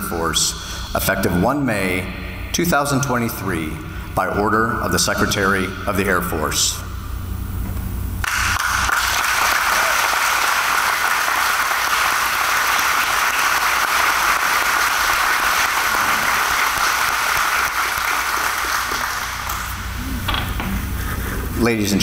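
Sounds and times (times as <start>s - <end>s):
audience applauding: 8.2s - 20.0s.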